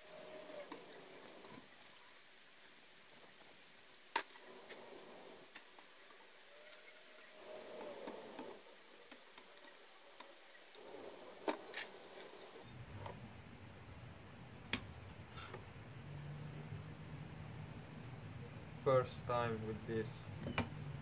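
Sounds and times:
hand tools clicking and scraping: 0.0s - 1.6s, 4.2s - 12.6s.

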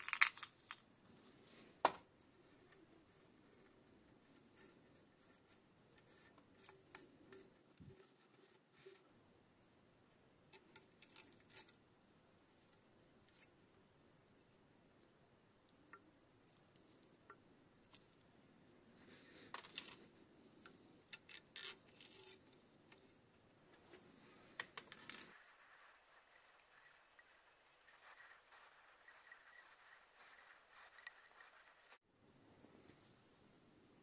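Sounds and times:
rubbing and ticking of parts: 24.6s - 32.0s.

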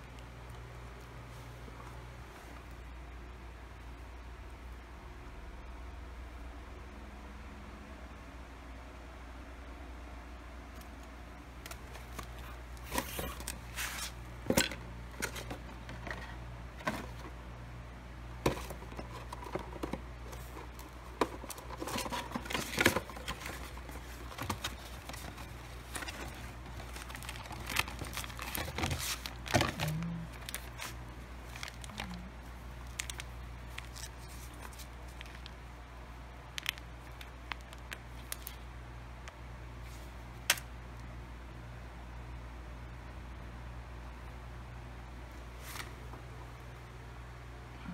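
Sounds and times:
steady low hum: 0.0s - 47.9s
cardboard box being opened: 18.5s - 31.0s
plastic packet crinkling: 18.5s - 35.6s, 36.4s - 38.6s.

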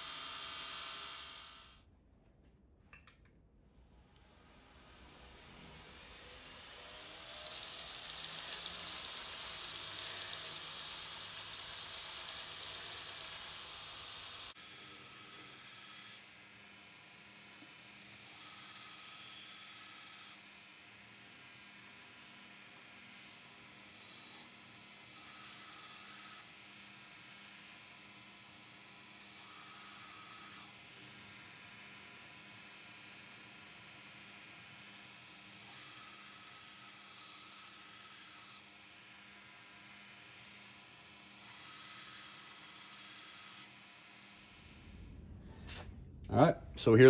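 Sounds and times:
belt grinder grinding steel: 0.0s - 1.8s, 6.7s - 16.3s, 28.0s - 31.1s, 34.6s - 45.0s.

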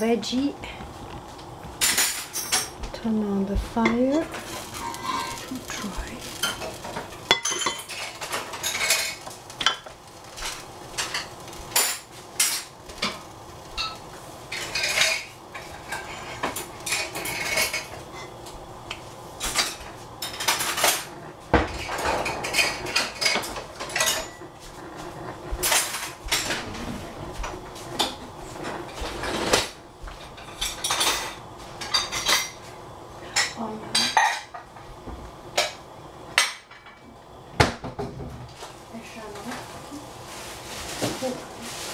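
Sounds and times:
metal pots and pans clattering: 3.8s - 18.4s, 19.4s - 27.0s, 28.0s - 32.7s, 33.3s - 34.7s.

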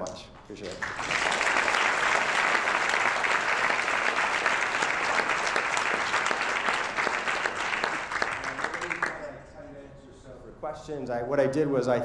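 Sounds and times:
audience applauding: 0.6s - 9.4s.

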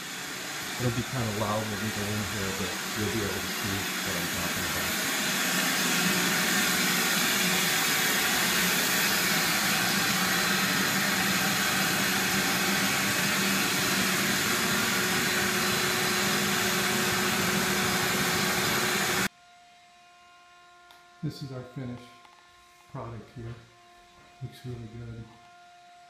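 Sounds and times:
vacuum sander suction rush: 0.0s - 19.3s.

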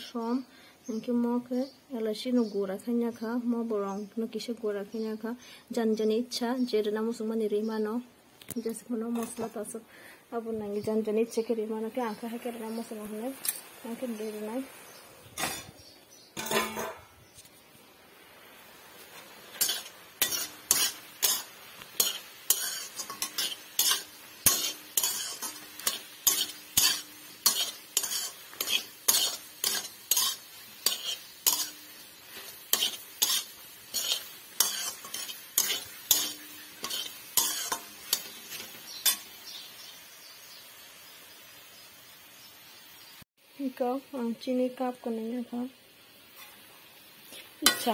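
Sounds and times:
metal spoon scraping a wok: 15.3s - 15.8s, 16.4s - 17.1s, 19.1s - 39.3s, 47.6s - 47.9s.

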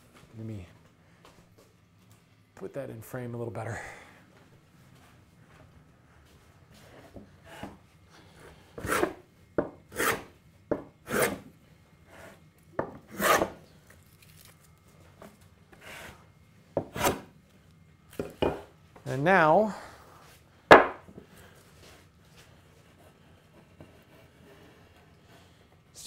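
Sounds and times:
plane scraping wood: 8.7s - 9.2s, 9.9s - 10.3s, 11.1s - 11.4s, 13.1s - 13.6s, 15.7s - 16.2s, 22.8s - 25.6s.

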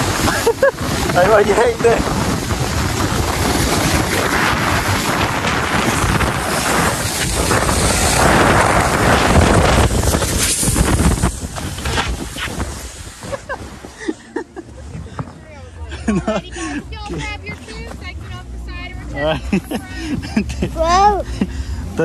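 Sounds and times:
wind rushing over microphone: 0.0s - 14.1s
snow tube scraping over snow: 0.0s - 22.0s.

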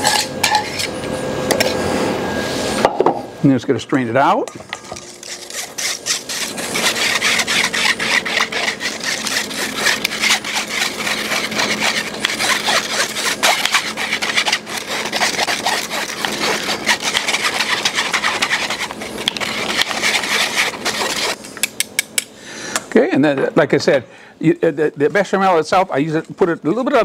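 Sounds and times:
whisk scraping against mesh sieve: 4.5s - 21.4s.

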